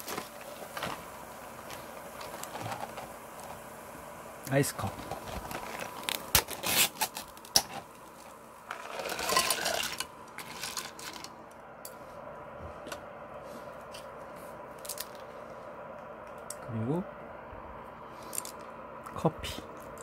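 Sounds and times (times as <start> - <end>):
ice clattering in a pan: 4.8 - 7.9, 8.6 - 11.4
ice clicking: 8.6 - 11.4
ice cubes clinking: 8.7 - 11.3.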